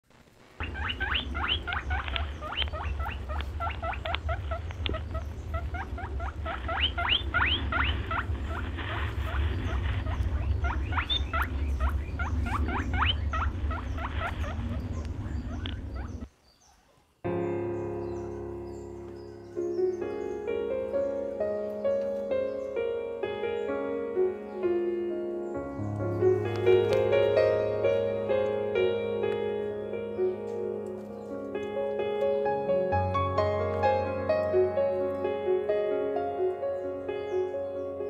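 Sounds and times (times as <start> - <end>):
steady low hum: 0.1 - 16.3
guinea pigs squeaking: 0.6 - 17.0
music: 17.3 - 38.0.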